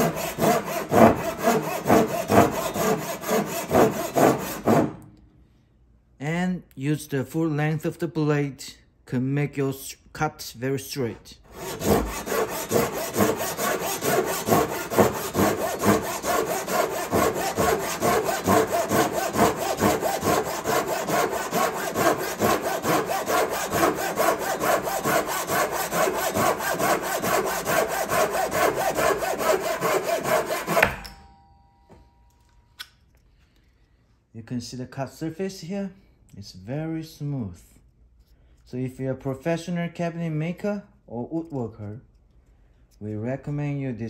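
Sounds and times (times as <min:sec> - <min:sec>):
hand saw cutting wood: 0:00.0 - 0:05.0, 0:11.5 - 0:31.1.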